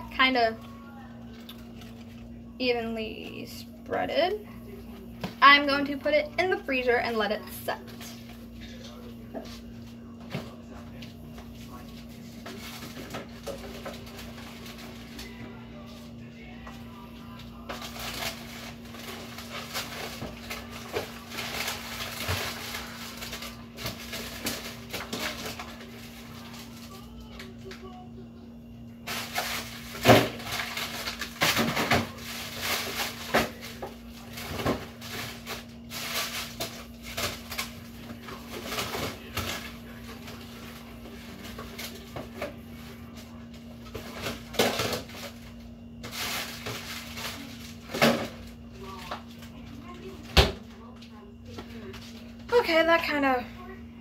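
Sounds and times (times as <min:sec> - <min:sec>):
freezer hum: 0:00.0 - 0:54.0
items knocking and clattering: 0:12.3 - 0:15.3, 0:17.6 - 0:26.8, 0:29.1 - 0:42.6, 0:43.8 - 0:45.4, 0:46.0 - 0:49.3
packages rustling: 0:16.8 - 0:27.9, 0:29.1 - 0:50.2.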